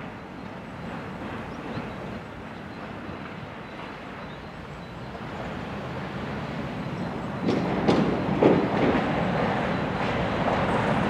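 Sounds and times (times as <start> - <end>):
tram rumbling on track: 0.0 - 11.0
tram wheels knocking: 6.8 - 11.0.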